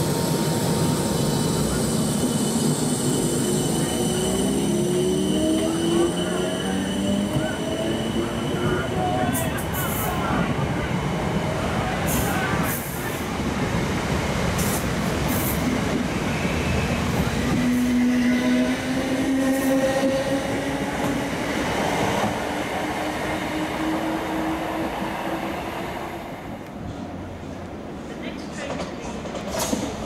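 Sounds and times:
train wheels clattering on rails: 28.6s - 30.0s.

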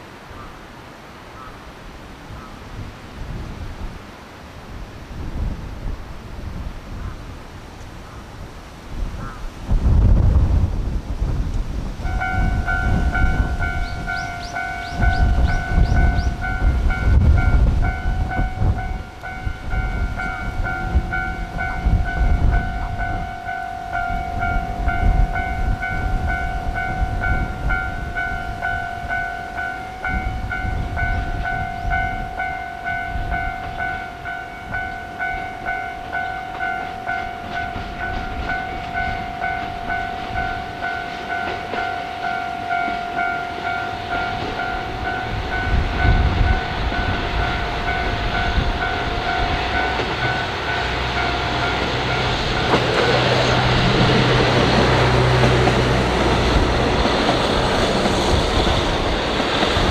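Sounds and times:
train rumbling past: 0.0s - 59.9s
wheels clicking over rail joints: 11.6s - 59.9s
steady ringing tone: 12.0s - 55.0s.

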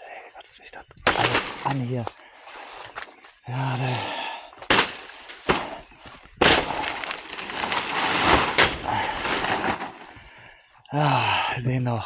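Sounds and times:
chopping blows into plant trunk: 1.0s - 1.8s, 4.6s - 5.8s, 6.4s - 9.9s
sharp crack: 1.0s - 1.8s, 4.6s - 5.8s, 6.4s - 10.1s
plant toppling with leaves crashing: 4.6s - 10.2s.

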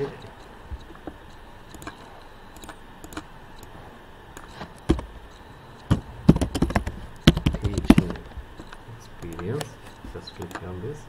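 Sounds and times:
typing on computer keyboard: 1.7s - 3.7s, 5.8s - 8.3s, 9.2s - 9.7s.

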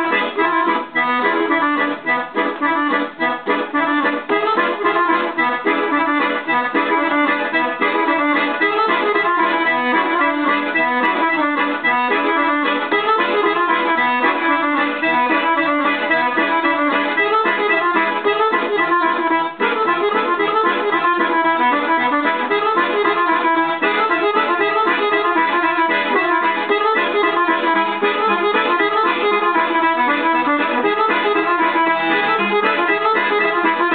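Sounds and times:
accordion dance tune: 0.0s - 33.9s.

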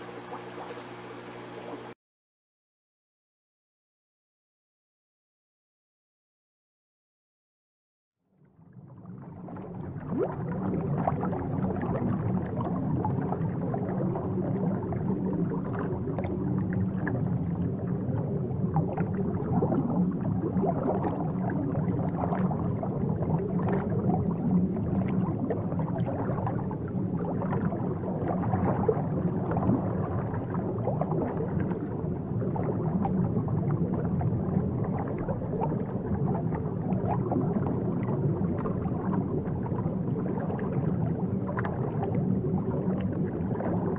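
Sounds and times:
aquarium water bubbling: 0.0s - 2.0s, 8.5s - 43.9s.

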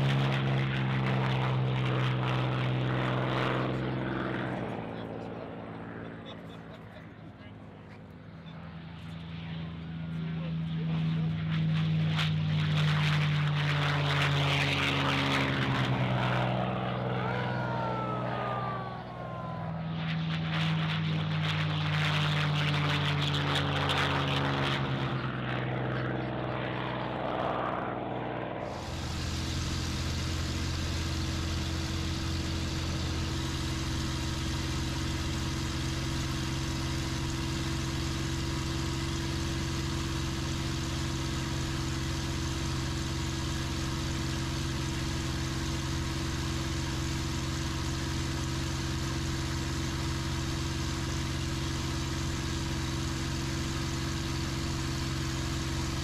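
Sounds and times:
propeller plane engines passing: 0.0s - 56.0s
engine drone inside cockpit: 28.2s - 56.0s.

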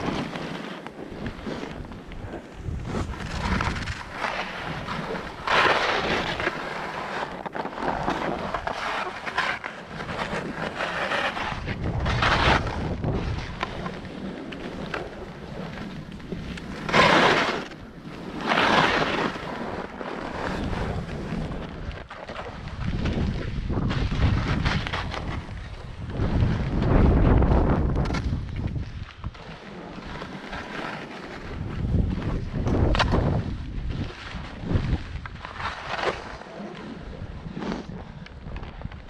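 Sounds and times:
skis scraping on snow: 0.0s - 39.0s
wind buffeting microphone: 1.1s - 6.5s, 11.3s - 16.9s, 20.4s - 29.4s, 31.4s - 35.7s.

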